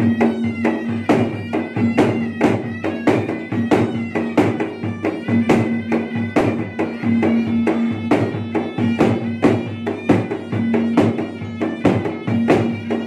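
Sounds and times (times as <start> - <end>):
hand drums fast beat: 0.0 - 13.0
reed pipe melody: 0.0 - 13.0.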